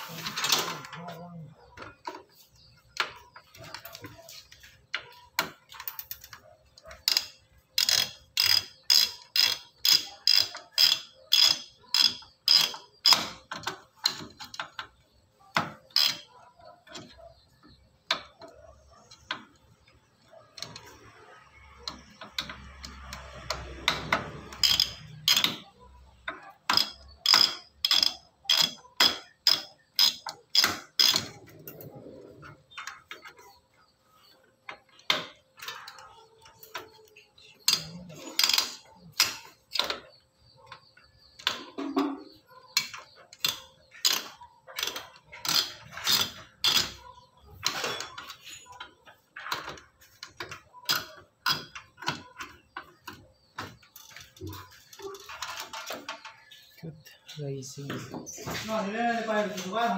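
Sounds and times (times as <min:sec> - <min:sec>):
sharp ratchet-like clicking: 0:05.7 - 0:14.8, 0:20.6 - 0:31.8.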